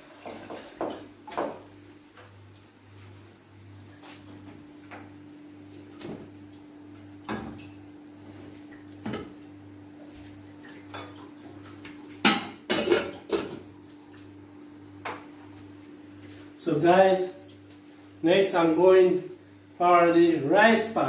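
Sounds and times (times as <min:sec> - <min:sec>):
metal pots and lids clanking: 0:12.2 - 0:13.6.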